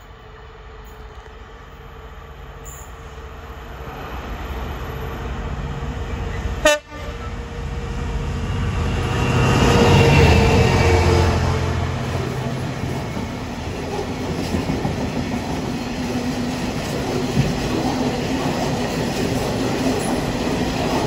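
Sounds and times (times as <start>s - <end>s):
diesel locomotive engine drone: 0.0s - 21.0s
locomotive horn toot: 6.6s - 7.4s.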